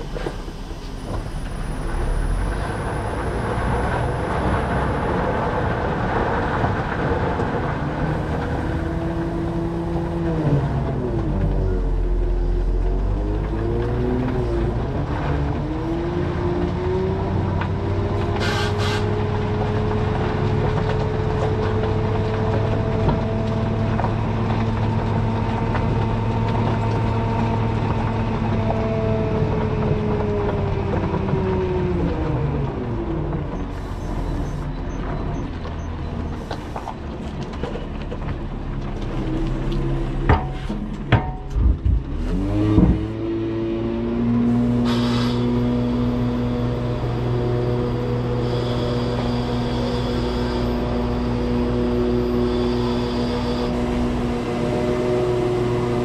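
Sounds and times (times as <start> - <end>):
truck diesel engine running: 0.0 - 15.6, 44.4 - 56.0.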